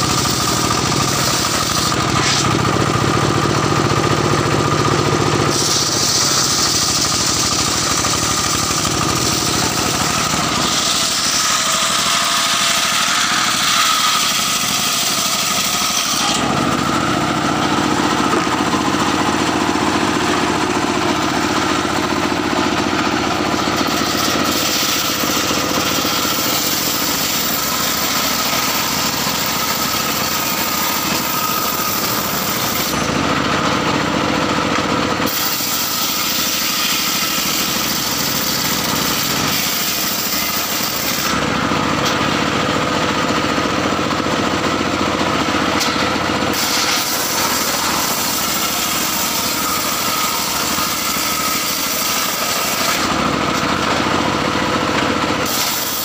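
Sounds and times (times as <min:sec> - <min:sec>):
circular saw ripping wood: 0:00.0 - 0:56.0.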